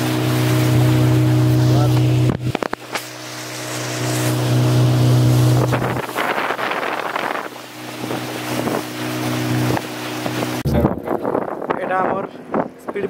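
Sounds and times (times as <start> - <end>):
speedboat engine running: 0.0 - 13.0
water rushing past hull: 0.0 - 13.0
wind on microphone: 4.3 - 13.0.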